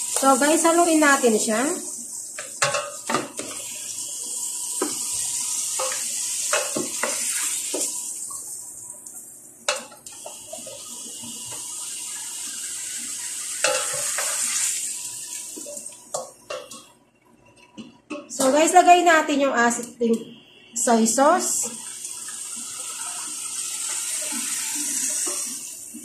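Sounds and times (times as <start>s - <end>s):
meat sizzling in hot oil: 0.0s - 8.3s, 10.1s - 15.8s, 21.5s - 26.0s.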